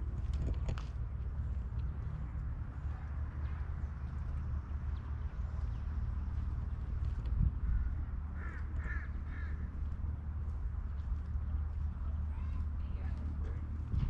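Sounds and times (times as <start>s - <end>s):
steady low rumble: 0.0s - 14.0s
crow cawing: 7.6s - 9.8s.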